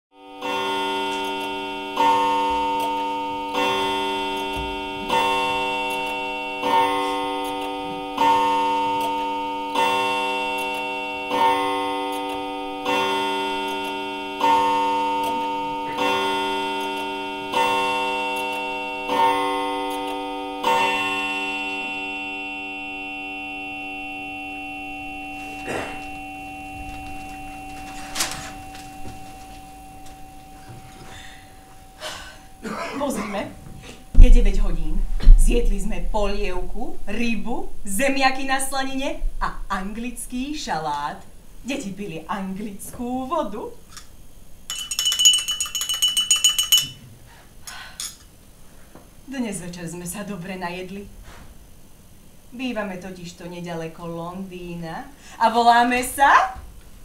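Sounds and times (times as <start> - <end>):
clock striking bell-like chime: 0.2 - 32.7.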